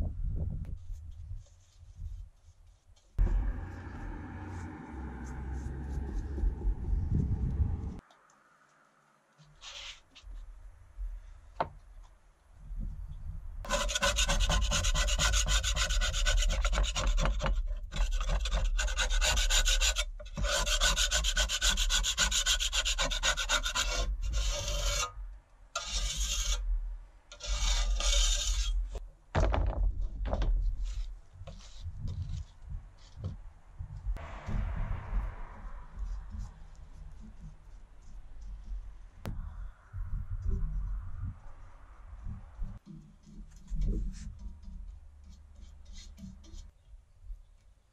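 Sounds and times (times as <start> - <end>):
scraper scraping paint off steel: 13.7 - 25.1, 25.8 - 26.6, 27.3 - 29.0.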